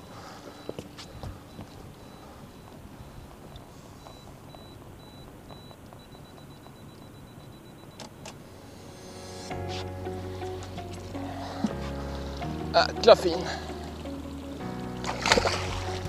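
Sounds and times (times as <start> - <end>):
camera self-timer beeping: 0.0 - 8.3.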